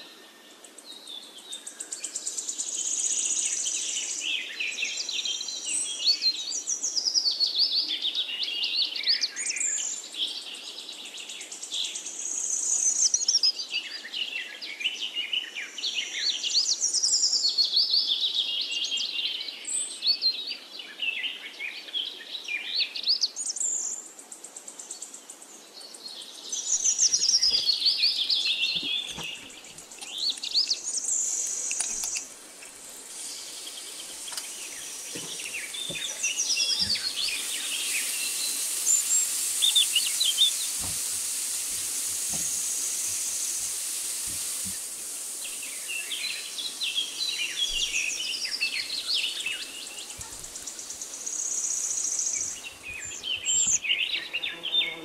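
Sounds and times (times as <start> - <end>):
faint hiss: 0.0 - 55.0
birds chirping and singing: 26.6 - 44.8, 45.4 - 55.0.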